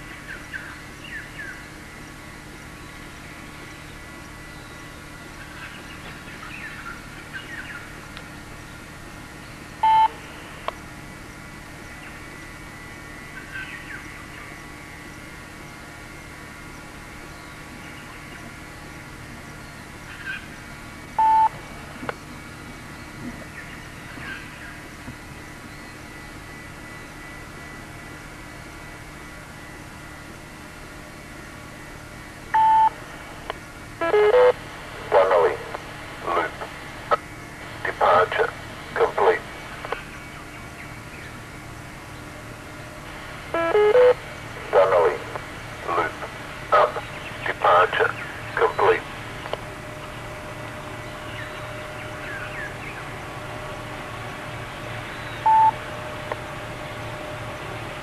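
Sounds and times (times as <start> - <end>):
low hum: 0.0 - 58.0
electronic beeps: 9.8 - 10.2, 21.2 - 21.6, 32.6 - 33.0, 34.0 - 34.6, 43.6 - 44.2, 55.4 - 55.8.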